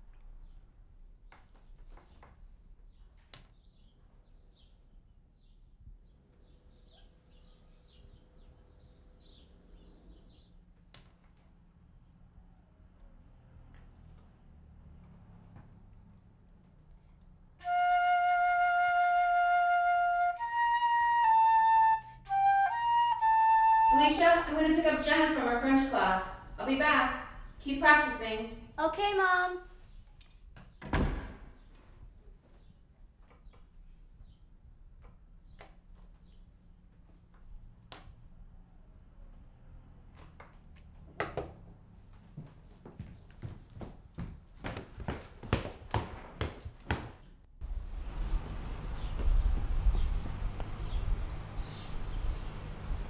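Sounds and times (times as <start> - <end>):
solo concert flute: 17.6 - 24.4.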